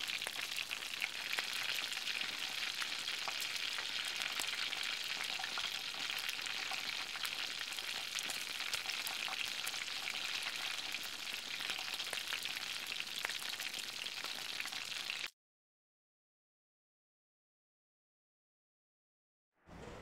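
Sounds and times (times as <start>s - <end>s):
burger patty sizzling on griddle: 0.0s - 15.3s.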